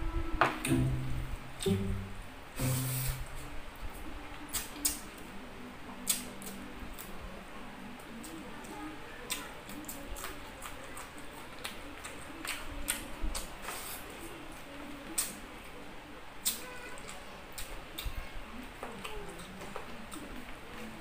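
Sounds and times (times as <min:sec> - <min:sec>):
lip smacks and chewing: 0:04.5 - 0:05.2, 0:06.0 - 0:07.2, 0:08.1 - 0:13.9, 0:15.2 - 0:15.4.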